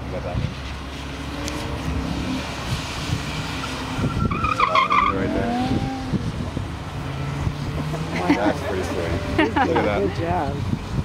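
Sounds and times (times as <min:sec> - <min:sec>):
car engine revving: 0:00.7 - 0:10.5
tyre squeal: 0:03.6 - 0:06.0.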